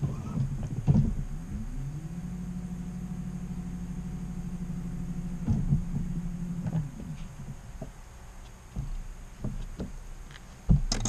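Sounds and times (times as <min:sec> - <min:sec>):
knocks: 0:00.0 - 0:01.4, 0:05.4 - 0:08.0, 0:08.7 - 0:10.0, 0:10.7 - 0:11.0
electric boat motor humming: 0:00.0 - 0:10.3.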